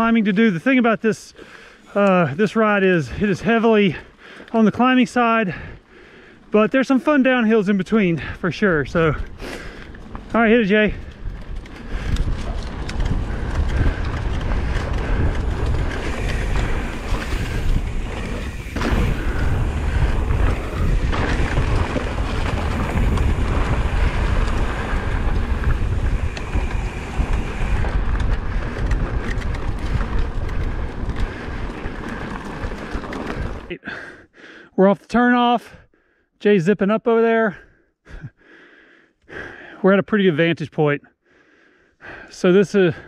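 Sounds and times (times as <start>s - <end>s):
wind buffeting microphone: 8.2s - 33.7s.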